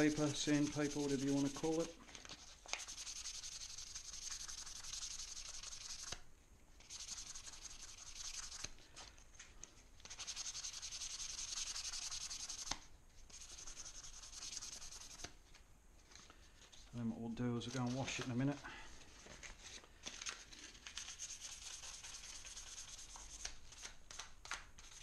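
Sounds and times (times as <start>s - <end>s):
sandpaper rubbing on metal: 0.0s - 2.0s, 2.8s - 6.2s, 6.8s - 8.7s, 10.2s - 12.7s, 13.3s - 15.3s, 21.1s - 23.5s.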